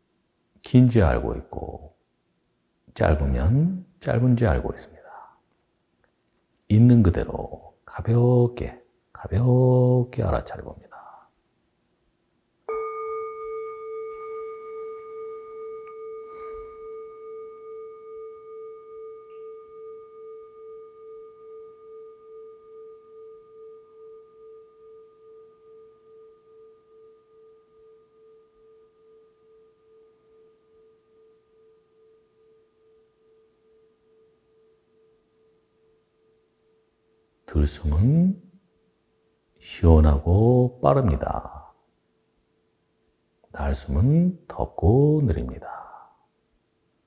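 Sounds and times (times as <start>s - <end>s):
meditation bell ringing: 12.7s - 39.7s.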